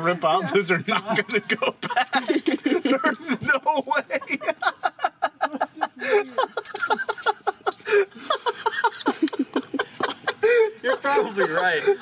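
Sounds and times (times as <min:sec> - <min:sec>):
men laughing: 0:00.3 - 0:12.0.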